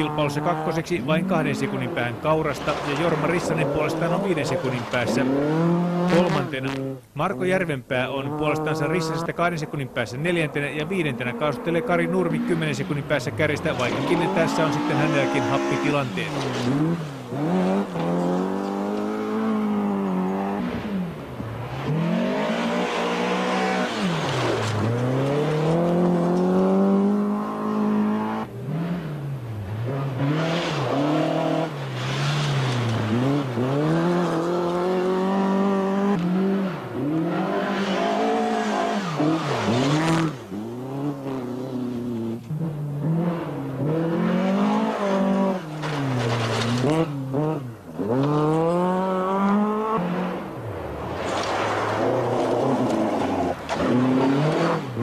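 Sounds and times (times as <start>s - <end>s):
rally car engines revving: 0.0s - 55.0s.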